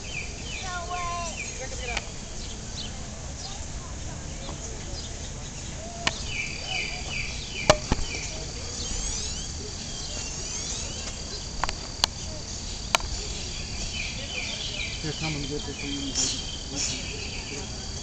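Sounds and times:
bird chirps: 0:00.0 - 0:03.7, 0:04.3 - 0:17.9
insect trilling: 0:06.0 - 0:18.0.

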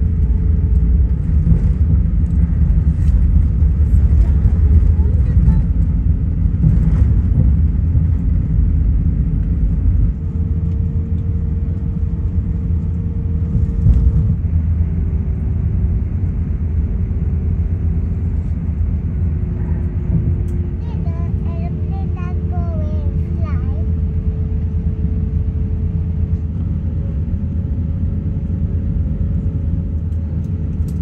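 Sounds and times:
aircraft engines low rumble: 0:00.0 - 0:31.0
faint steady hums: 0:00.0 - 0:31.0.

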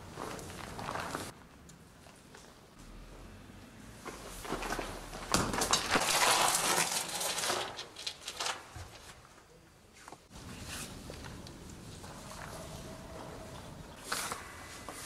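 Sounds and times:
footsteps on gravelly dirt: 0:00.0 - 0:01.4.

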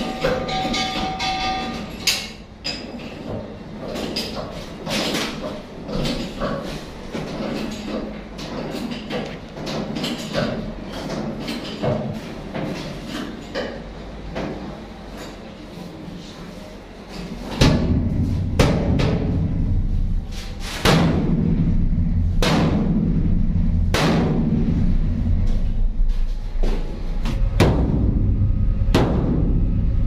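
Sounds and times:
sledgehammer ringing on steel wall: 0:17.6 - 0:29.9
loud low drone: 0:17.6 - 0:30.0.

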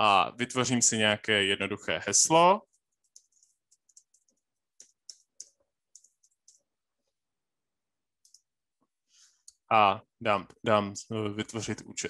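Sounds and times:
keyboard typing clicks: 0:03.0 - 0:06.6, 0:08.2 - 0:08.5.

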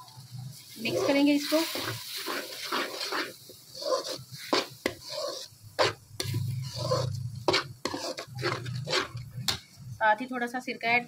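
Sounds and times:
metal spoon scraping a pan: 0:00.8 - 0:09.6
stirring thick wet filling: 0:00.8 - 0:09.6.

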